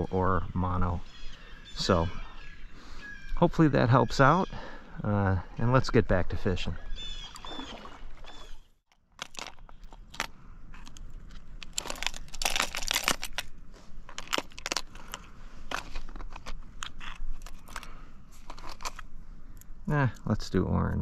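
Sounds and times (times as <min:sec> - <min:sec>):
handling noise rustling and clicking: 0:08.9 - 0:19.7.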